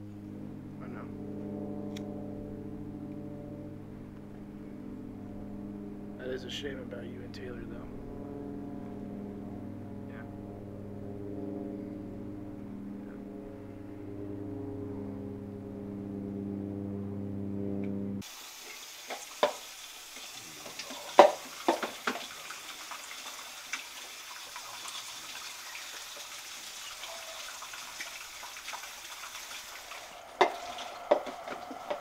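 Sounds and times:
low steady drone: 0:00.0 - 0:18.3, 0:27.0 - 0:32.0
tap running into a sink: 0:19.0 - 0:22.4
dishes clinking in a sink: 0:20.6 - 0:22.2.

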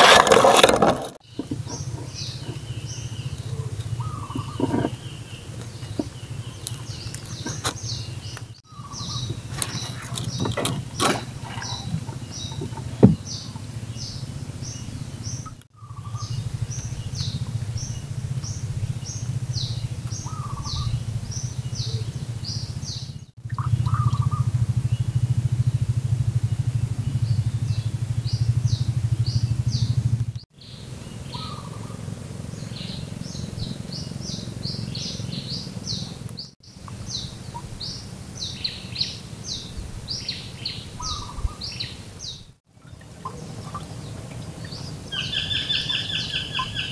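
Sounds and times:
small boat engine droning: 0:00.0 - 0:46.9
bird chirping: 0:00.1 - 0:25.3, 0:27.0 - 0:30.0, 0:30.6 - 0:46.9.

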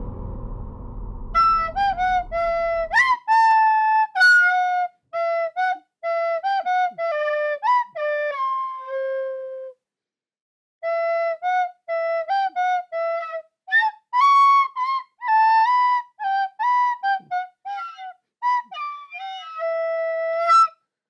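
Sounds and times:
solo flute-like melody: 0:01.4 - 0:09.8, 0:10.8 - 0:20.8.

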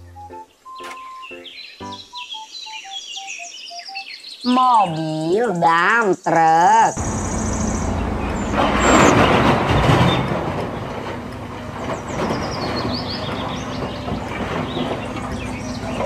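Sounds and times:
birds chirping: 0:00.0 - 0:16.0
diesel engine running: 0:07.0 - 0:16.0.

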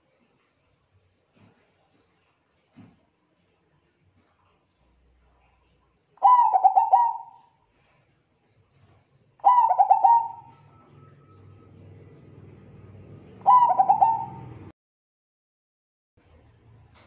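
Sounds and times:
faint low hum: 0:00.0 - 0:14.7, 0:16.2 - 0:17.0
dove cooing: 0:06.2 - 0:07.6, 0:09.4 - 0:14.7.

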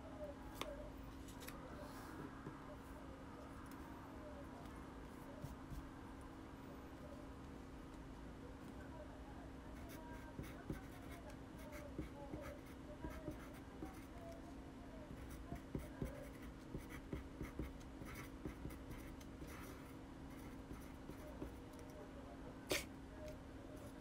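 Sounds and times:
pencil scratching on paper: 0:09.8 - 0:14.1, 0:15.2 - 0:21.6.

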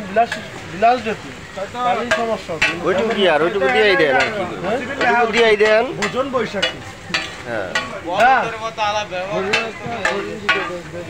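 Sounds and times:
food sizzling: 0:00.0 - 0:11.0
spatula scraping iron griddle: 0:00.2 - 0:08.6.

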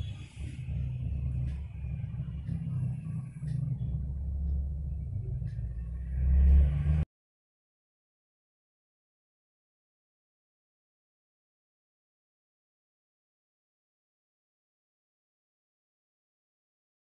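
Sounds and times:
steady low rumble: 0:00.0 - 0:07.1.

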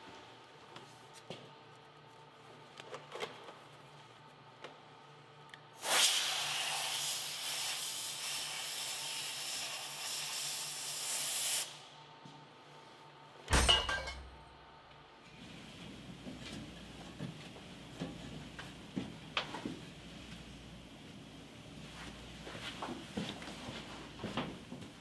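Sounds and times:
aerosol spray hissing: 0:05.8 - 0:11.7.

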